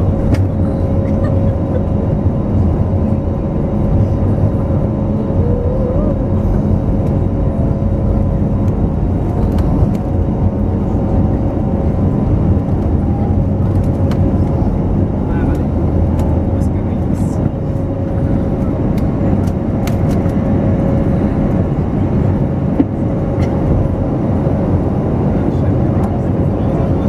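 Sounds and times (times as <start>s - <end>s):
airliner cabin engine drone: 0.0s - 27.0s.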